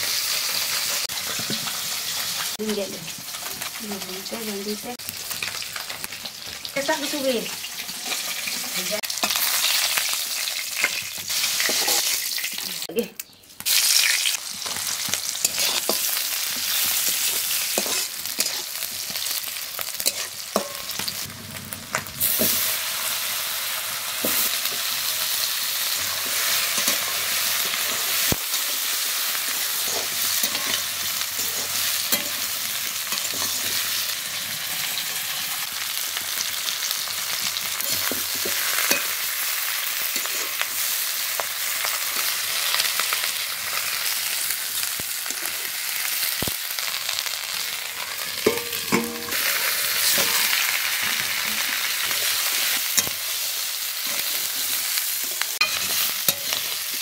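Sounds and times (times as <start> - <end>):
hot oil sizzling in a wok: 0.0 - 13.0, 13.6 - 57.0
spatula scraping a pan: 14.6 - 21.1, 29.5 - 34.0, 48.0 - 53.3, 54.0 - 57.0.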